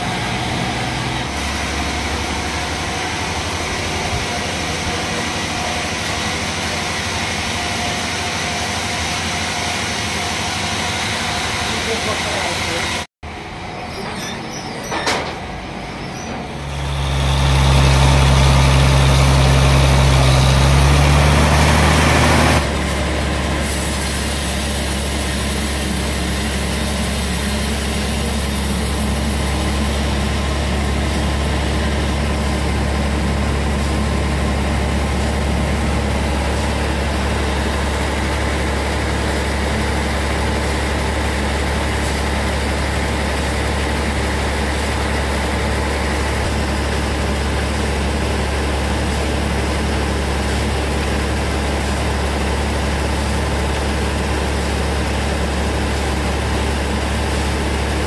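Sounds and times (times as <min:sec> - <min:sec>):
stationary engine running: 0:15.7 - 0:58.0.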